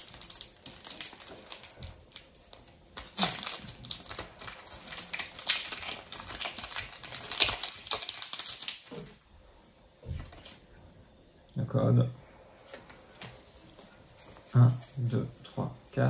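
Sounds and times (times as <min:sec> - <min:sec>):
foil wrapper tearing and crinkling: 0:00.0 - 0:09.2.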